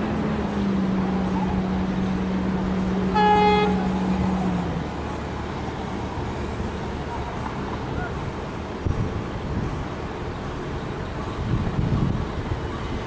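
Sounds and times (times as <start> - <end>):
train horn toot: 3.1 - 4.0.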